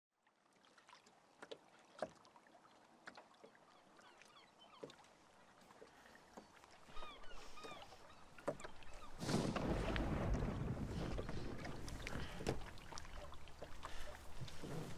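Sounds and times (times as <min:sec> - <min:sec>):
rush of water and wind: 0:03.6 - 0:14.9
knocks and creaks: 0:08.4 - 0:14.9.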